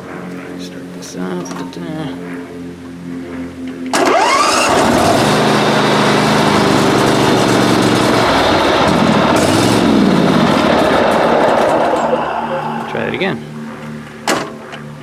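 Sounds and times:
mower engine starting and running: 3.8 - 15.0.

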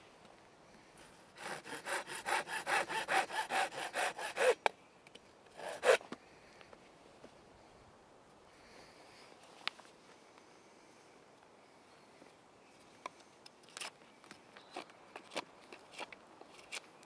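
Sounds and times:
hand saw cutting wood: 1.4 - 4.6, 5.6 - 6.0.

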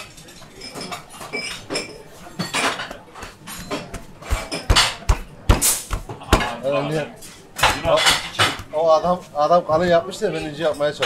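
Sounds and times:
metal utensils and dishes clinking: 0.0 - 9.3
sharp knocks with deep thud: 2.9 - 6.6.

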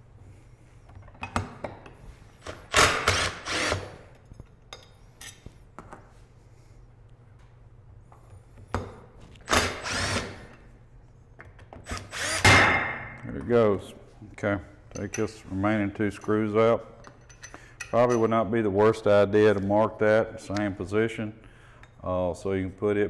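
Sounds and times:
cordless impact driver running: 2.7 - 4.0, 9.5 - 10.4, 11.9 - 12.4.

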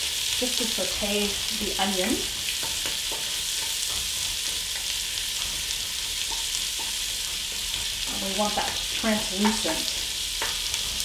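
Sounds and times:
onion sizzling in fat: 0.0 - 11.0.

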